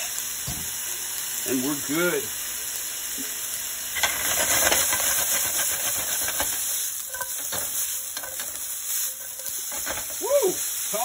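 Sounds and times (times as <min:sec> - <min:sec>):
meat and onion sizzling in a pan: 0:00.0 - 0:11.0
food pieces scraping against pan: 0:04.0 - 0:10.8.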